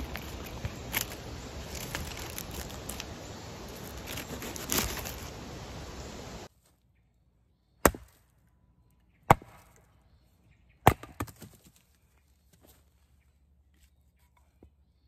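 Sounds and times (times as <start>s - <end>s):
axe chopping wood: 7.8s - 8.2s, 9.3s - 9.7s, 10.8s - 11.5s.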